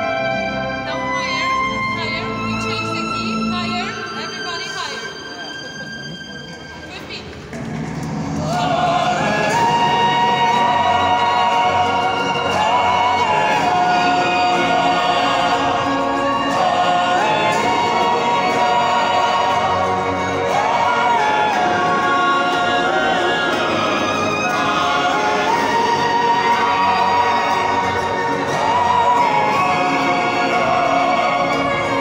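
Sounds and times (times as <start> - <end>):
male choir chanting: 8.3 - 32.0.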